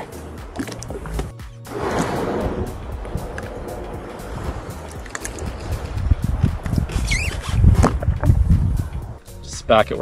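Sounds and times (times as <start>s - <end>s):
water splashes: 0.0s - 6.8s
low thumps: 0.5s - 9.2s
wind buffeting microphone: 1.7s - 9.2s.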